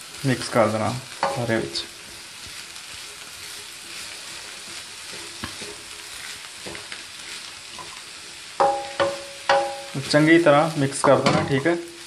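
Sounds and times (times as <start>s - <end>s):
vegetables sizzling in oil: 0.0s - 12.0s
spatula scraping a pan: 1.1s - 10.4s.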